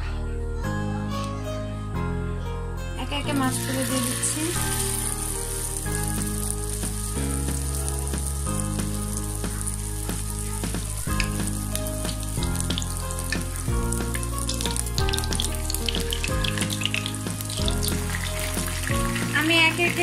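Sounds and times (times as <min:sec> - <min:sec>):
background music: 0:00.0 - 0:20.0
fish sizzling in hot oil: 0:03.4 - 0:20.0.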